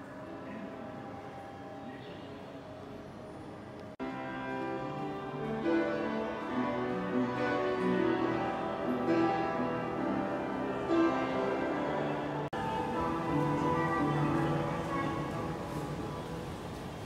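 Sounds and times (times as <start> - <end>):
melody of held notes: 4.0 - 16.4.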